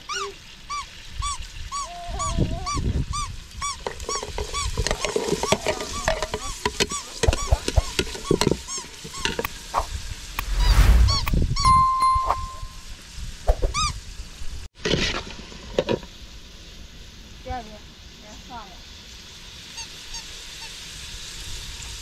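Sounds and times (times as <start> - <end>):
metal ladle scraping cooking pot: 3.8 - 9.9.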